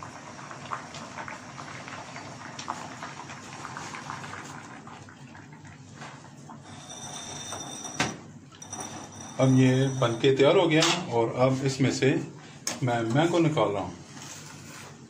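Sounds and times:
water boiling with small pops: 0.0 - 6.8.

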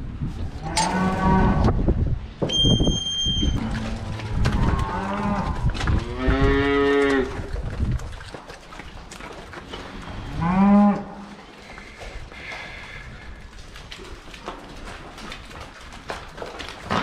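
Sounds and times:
cows mooing: 0.6 - 1.8, 3.6 - 7.5, 9.7 - 11.6.

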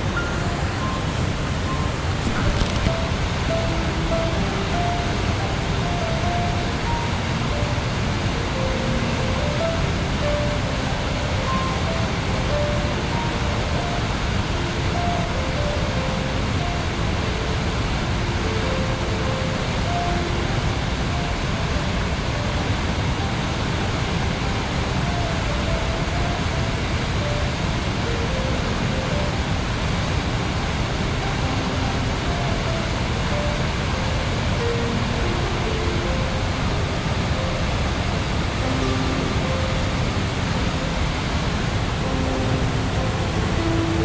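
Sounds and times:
soft slow melody: 0.0 - 44.0
water rushing over rocks: 0.0 - 44.0.

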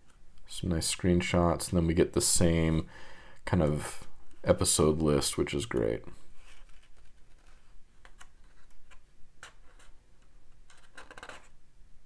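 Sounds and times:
paper pages turning: 6.4 - 11.6.

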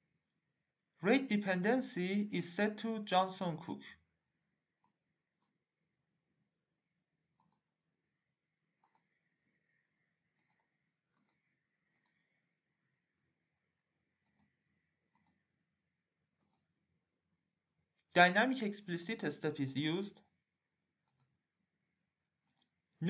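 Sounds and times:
computer mouse clicks: 7.4 - 7.7, 8.8 - 9.2, 10.3 - 12.4, 14.2 - 15.5, 16.4 - 16.7, 21.0 - 21.4, 22.2 - 22.8.

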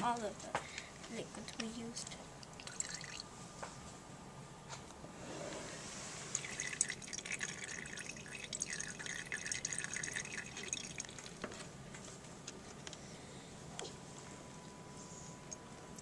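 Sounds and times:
liquid dripping into bottle: 2.4 - 3.3, 6.3 - 11.4.

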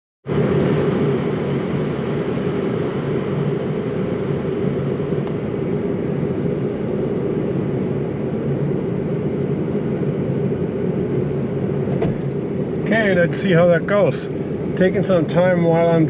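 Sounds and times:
vehicle engine rumbling: 5.0 - 16.0.

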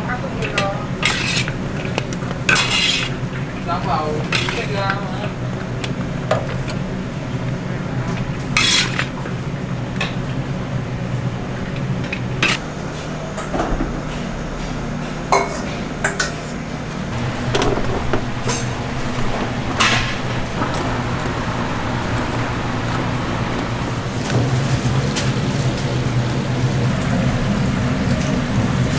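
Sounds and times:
steady low hum: 0.0 - 28.9
metal utensils clinking on pans: 0.4 - 5.4, 8.5 - 9.2, 15.3 - 16.5.

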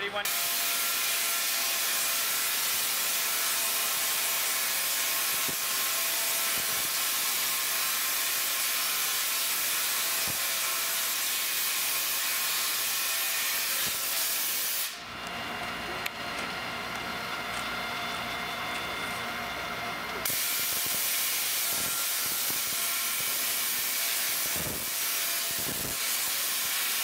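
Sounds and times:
tesla coil arcs hissing: 0.2 - 15.0, 20.2 - 27.0.

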